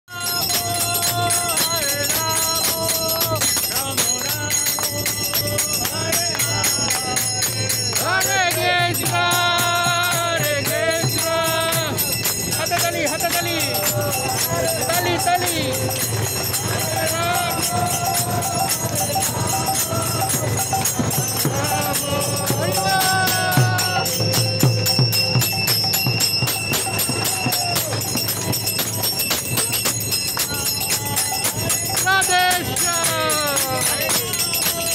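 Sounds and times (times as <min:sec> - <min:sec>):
group singing a chant: 0:00.1 - 0:25.2
jingling hand percussion: 0:00.1 - 0:34.9
ringing metallic tones: 0:00.1 - 0:34.9
hands clapping: 0:00.3 - 0:24.6, 0:25.4 - 0:34.9.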